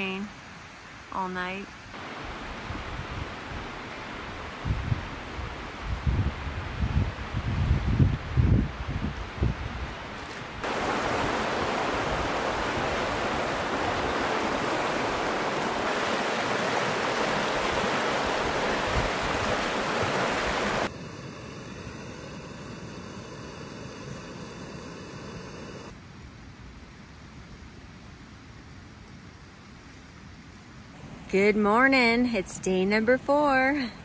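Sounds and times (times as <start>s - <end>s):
river rushing: 2.0s - 5.3s, 10.6s - 21.5s
steady hiss: 10.6s - 31.4s.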